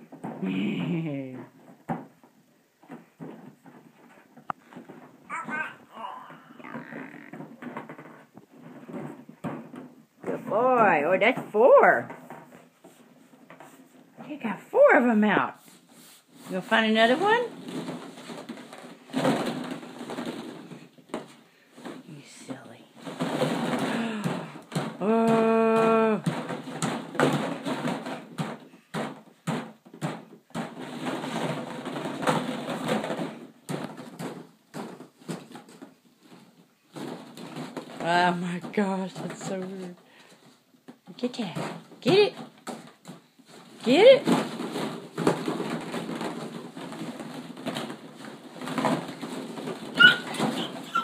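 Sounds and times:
plastic balls clattering: 0.0 - 51.0
baby squealing: 50.0 - 51.0.

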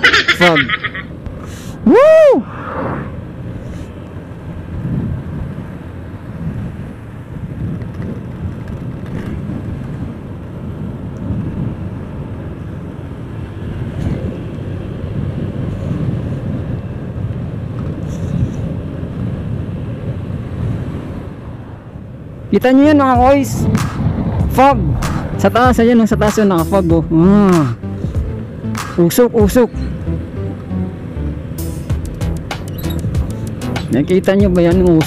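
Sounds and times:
wind rushing over microphone: 0.4 - 30.3
motorcycle engine: 27.6 - 34.1.

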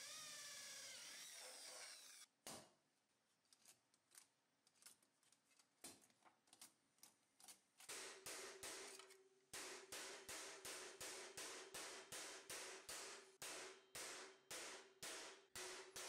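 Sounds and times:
electric drill boring through steel: 0.0 - 2.3
hammer blows on sheet steel: 7.9 - 16.0.

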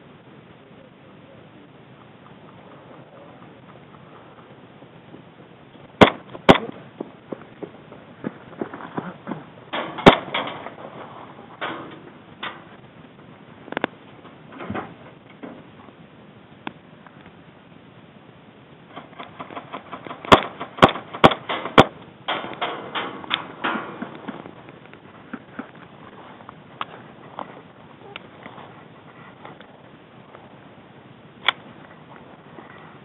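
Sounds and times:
airsoft gun shots: 6.0 - 6.7, 19.4 - 22.6
footsteps on gravel: 6.1 - 9.6.

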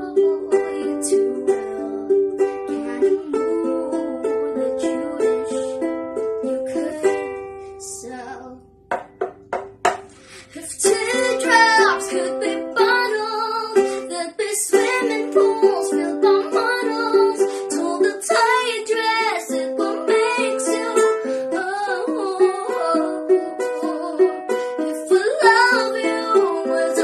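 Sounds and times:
girl singing: 0.0 - 8.9, 10.2 - 27.0
ukulele strumming: 0.0 - 27.0.

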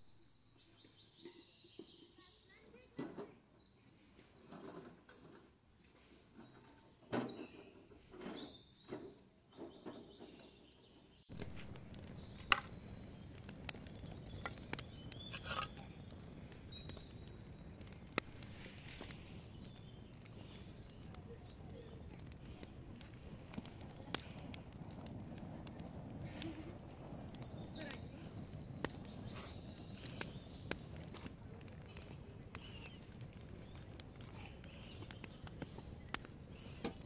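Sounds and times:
birds chirping: 0.0 - 37.0
wood fire crackling: 4.4 - 37.0.

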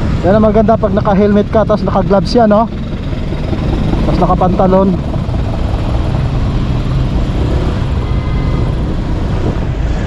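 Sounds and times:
wind rumble on microphone: 0.0 - 10.0
motorcycle engine: 1.5 - 10.0.

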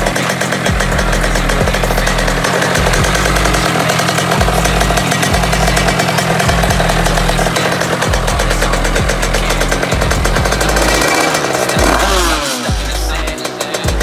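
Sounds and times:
moped engine revving: 0.0 - 14.0.

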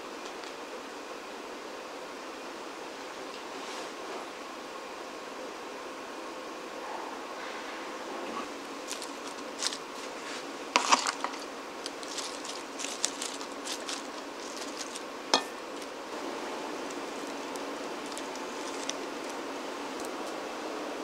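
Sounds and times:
faint steady hum: 0.0 - 21.0
leaves rustling and crackling: 7.4 - 21.0.

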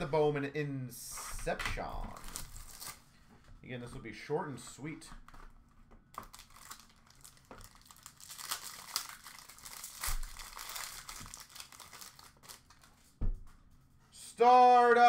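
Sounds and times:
packaging crinkling: 2.2 - 3.0, 6.1 - 13.2.

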